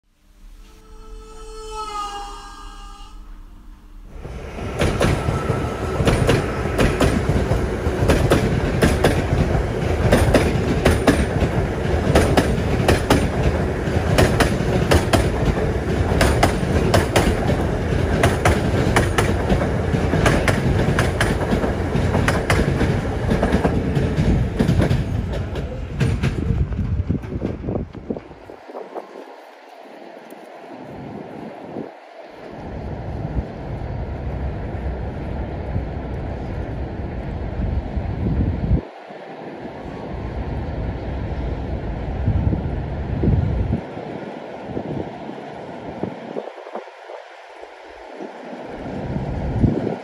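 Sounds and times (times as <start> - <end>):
train rumble: 0.1 - 50.0
train wheels clattering over rail joints: 4.7 - 28.4.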